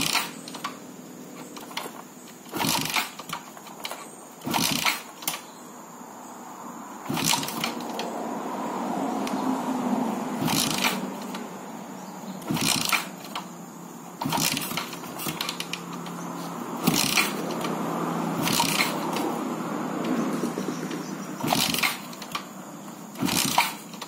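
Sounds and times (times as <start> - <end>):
motorcycle engine kick-start attempts: 0.0 - 5.6, 7.0 - 8.1, 10.4 - 11.5, 12.3 - 24.0.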